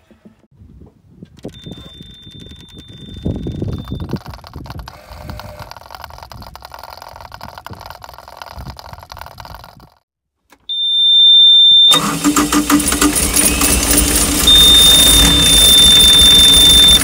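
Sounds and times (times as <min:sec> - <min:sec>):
clicking and rattling: 0:01.3 - 0:10.6
high-pitched warning beep: 0:01.5 - 0:04.1, 0:10.7 - 0:12.0, 0:13.4 - 0:17.0
diesel engine running loudly: 0:12.2 - 0:17.0.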